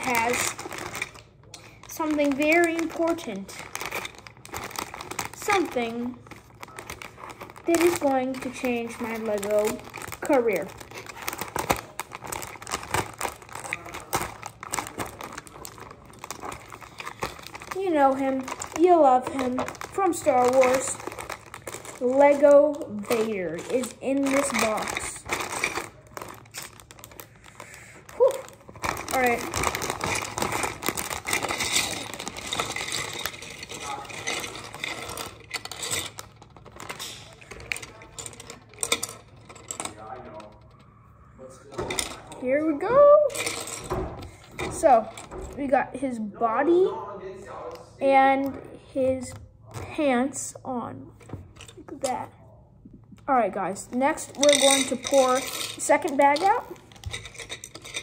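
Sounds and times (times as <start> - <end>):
scissors cutting plastic: 0.0 - 40.5
plastic bag crinkling: 0.0 - 40.8, 53.8 - 58.0
plastic bricks clattering on table: 28.6 - 40.8, 53.9 - 58.0.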